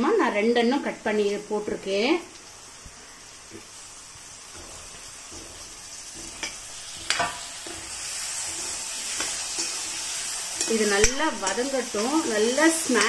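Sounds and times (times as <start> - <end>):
vegetables sizzling in oil: 0.0 - 13.0
spoon scraping and knocking pan: 4.4 - 13.0.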